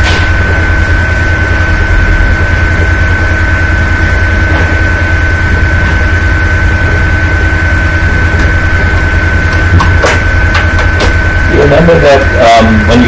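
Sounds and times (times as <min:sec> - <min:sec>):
high-pitched whine: 0:00.0 - 0:13.0
low rumbling mechanical drone: 0:00.0 - 0:13.0.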